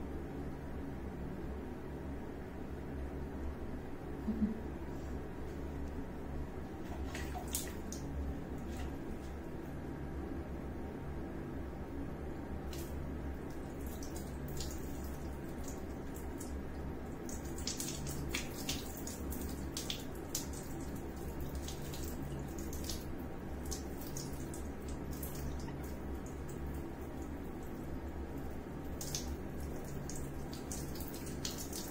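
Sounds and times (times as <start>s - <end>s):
steady low hum: 0.0s - 31.9s
water splashing into plastic bucket: 6.8s - 9.3s
water pouring and trickling: 12.7s - 31.9s.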